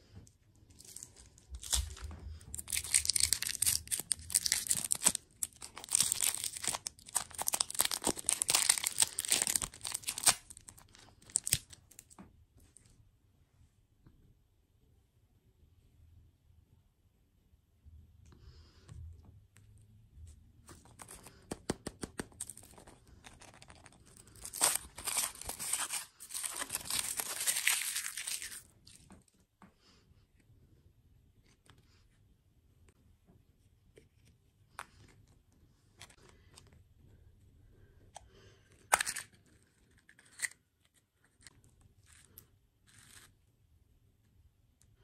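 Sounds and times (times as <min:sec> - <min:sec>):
handling chocolate shell: 0:00.7 - 0:12.2, 0:20.7 - 0:29.1
foil wrapper crinkling and tearing: 0:00.8 - 0:12.1, 0:20.8 - 0:29.1.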